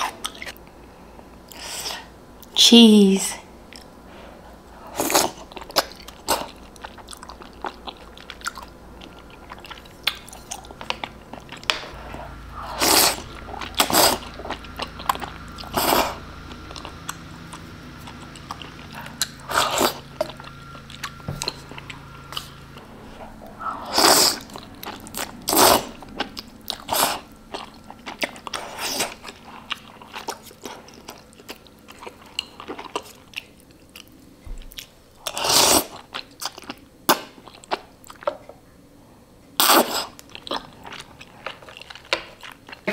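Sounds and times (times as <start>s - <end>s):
chewing: 0.0s - 0.7s, 3.7s - 38.6s, 39.6s - 42.9s
slurping noodles: 4.8s - 31.2s, 35.3s - 36.1s, 39.6s - 41.7s.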